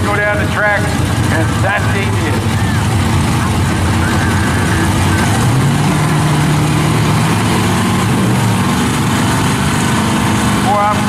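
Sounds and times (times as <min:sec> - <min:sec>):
car engines idling loudly: 0:00.0 - 0:11.0.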